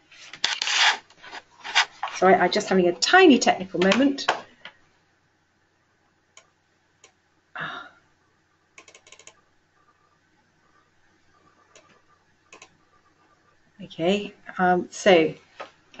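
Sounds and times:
keyboard and mouse clicks: 8.8 - 9.4, 11.6 - 12.8.

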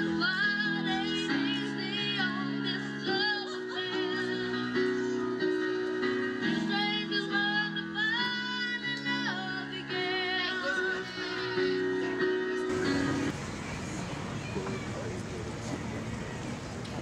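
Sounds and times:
boy singing into microphone: 0.0 - 4.9, 6.6 - 12.6
electric keyboard chords: 0.0 - 17.0.

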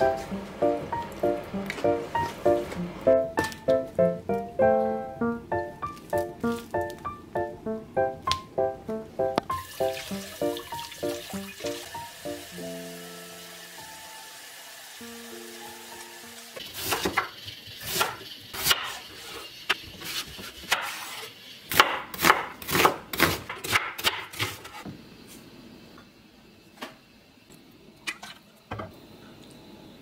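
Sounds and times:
knife chopping on wooden board: 21.7 - 24.8.

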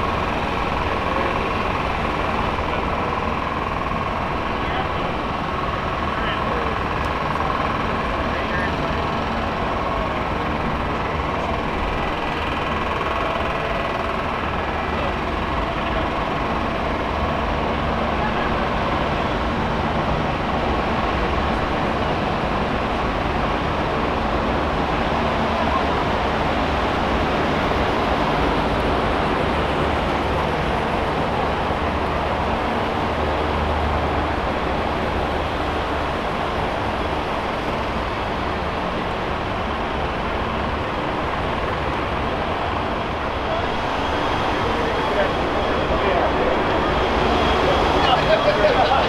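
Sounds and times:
low mechanical hum: 0.0 - 49.0
people talking indistinctly: 43.4 - 49.0.

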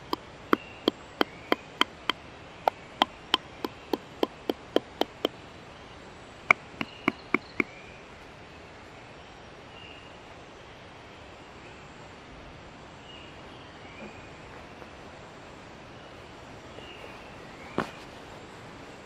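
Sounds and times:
mallet tapping leather chisel: 0.0 - 5.3, 6.5 - 7.7.

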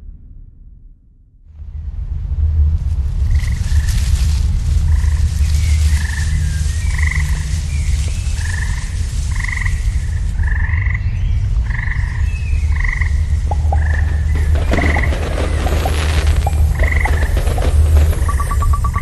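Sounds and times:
deep low rumble: 0.0 - 19.0
frogs croaking over loudspeakers: 4.9 - 19.0.

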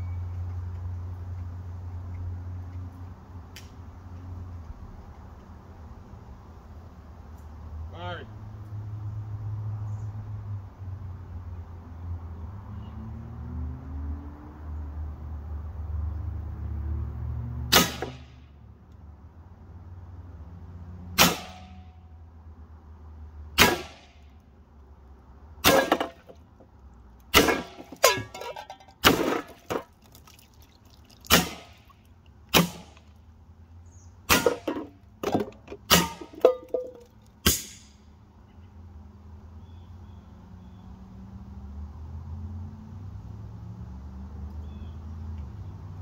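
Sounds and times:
air pistol shots: 17.7 - 18.4, 21.2 - 21.8, 23.6 - 24.2, 37.4 - 37.9
pellets clanging on tin cans: 27.5 - 30.0, 34.4 - 37.1.

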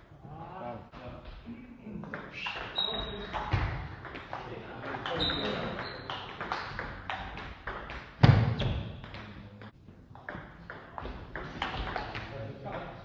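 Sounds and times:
loud table tennis hit: 2.2 - 9.3, 10.3 - 12.9.

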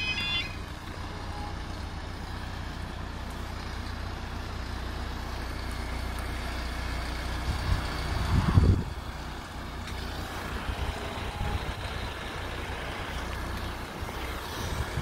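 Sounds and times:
crossing alarm warbling tones: 0.0 - 1.7
low engine rumble: 0.0 - 15.0.

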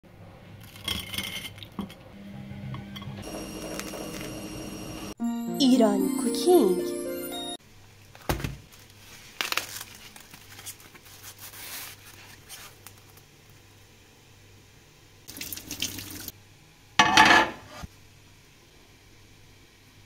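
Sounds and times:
cling film crinkling: 8.1 - 13.3.

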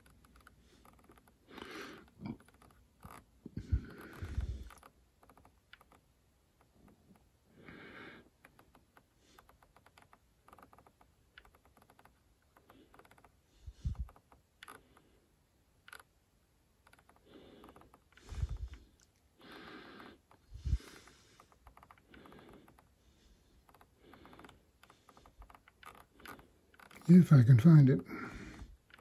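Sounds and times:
scroll wheel clicking: 15.8 - 16.1, 23.6 - 27.1.

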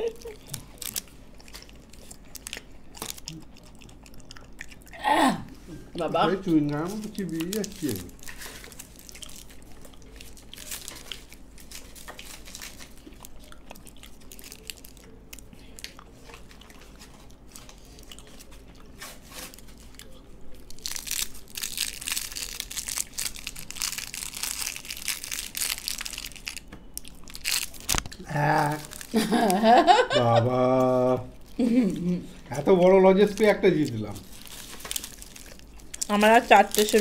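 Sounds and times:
wrappers crinkling: 0.0 - 3.7, 6.2 - 15.2, 16.3 - 37.0
chewing: 0.0 - 5.0, 7.4 - 29.2.

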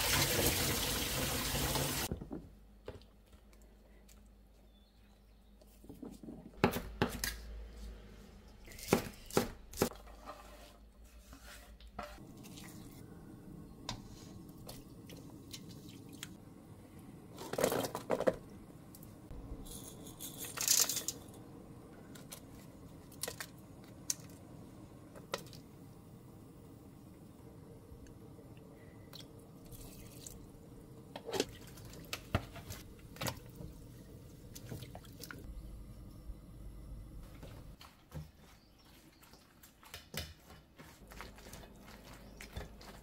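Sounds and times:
wooden spoon scraping steel bowl: 10.0 - 12.2.

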